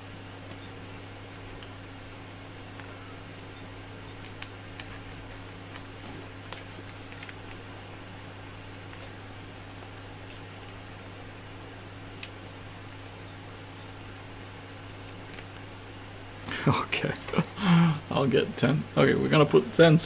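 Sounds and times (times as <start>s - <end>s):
steady low hum: 0.0s - 20.0s
cable sleeve clicks and rustles: 4.2s - 7.8s.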